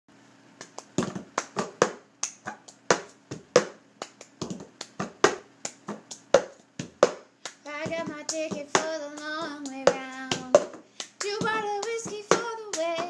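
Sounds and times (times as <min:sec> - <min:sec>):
hand claps: 0:00.6 - 0:13.0.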